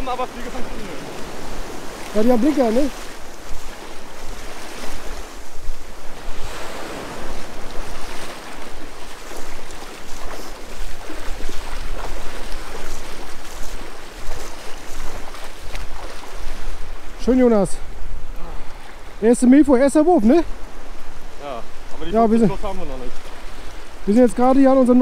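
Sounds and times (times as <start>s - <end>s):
wind buffeting microphone: 0.0s - 19.2s
waves washing on beach: 0.0s - 25.0s.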